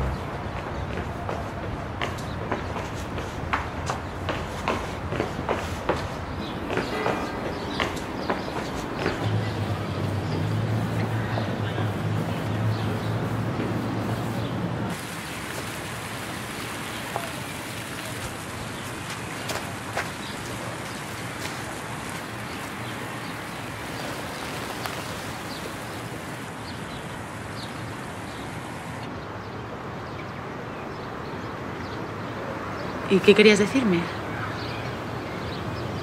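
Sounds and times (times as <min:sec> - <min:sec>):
fountain water splashing: 0:07.7 - 0:29.1.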